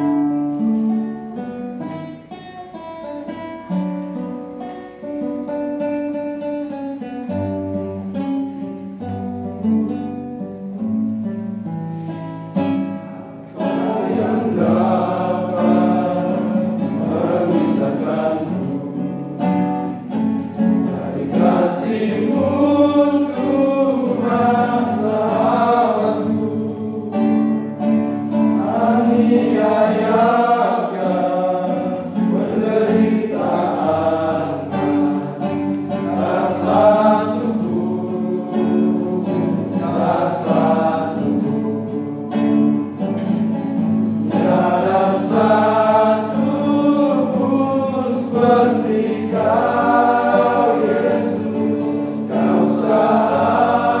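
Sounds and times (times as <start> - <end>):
strummed acoustic guitar: 0.0 - 54.0
men singing together: 13.6 - 43.2, 44.2 - 54.0.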